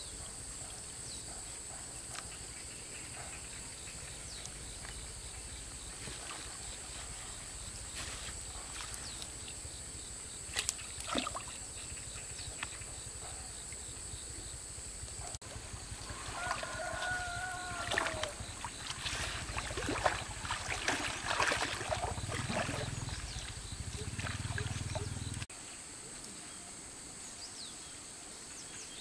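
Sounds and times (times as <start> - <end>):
rooster crowing: 16.0 - 18.4.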